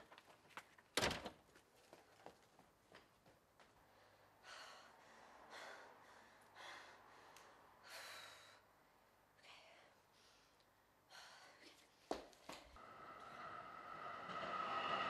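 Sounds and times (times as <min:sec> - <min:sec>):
woman breathing heavily: 0:03.7 - 0:15.0.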